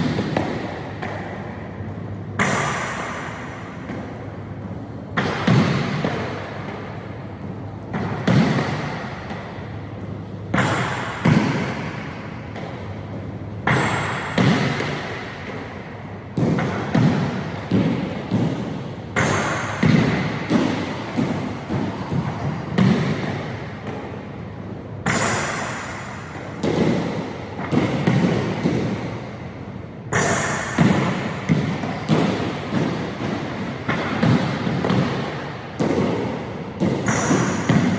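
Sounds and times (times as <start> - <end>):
basketball bouncing on hardwood floor: 19.2 - 23.4, 30.2 - 33.3, 36.8 - 37.9.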